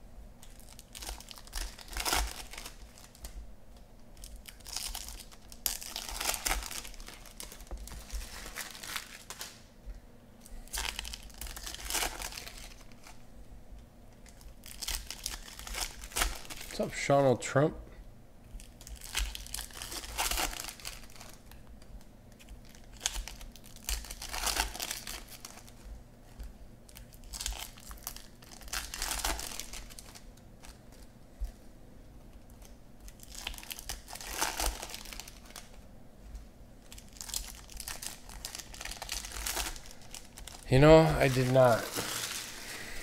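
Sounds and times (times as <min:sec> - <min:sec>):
foil wrappers tearing and crinkling: 0:00.4 - 0:03.4, 0:04.2 - 0:09.7, 0:10.7 - 0:13.2, 0:14.2 - 0:16.8, 0:18.6 - 0:25.8, 0:26.9 - 0:31.1, 0:32.4 - 0:35.8, 0:36.8 - 0:43.0
cards being handled: 0:40.8 - 0:42.9.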